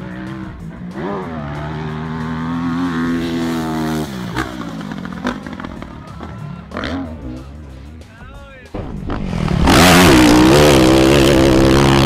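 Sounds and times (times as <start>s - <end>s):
dirt bike engine at high revs: 0.0s - 5.9s, 9.0s - 12.0s.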